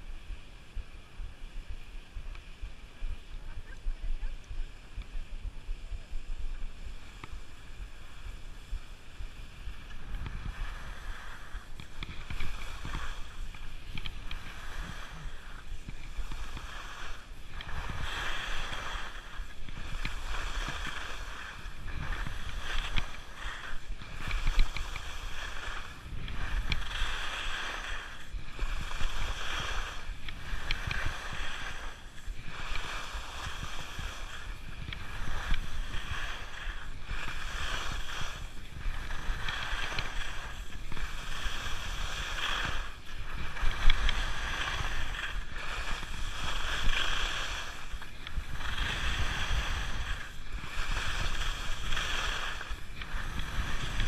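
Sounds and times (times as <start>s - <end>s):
skis scraping over snow: 0.0s - 54.0s
wind rumble on microphone: 0.0s - 54.0s.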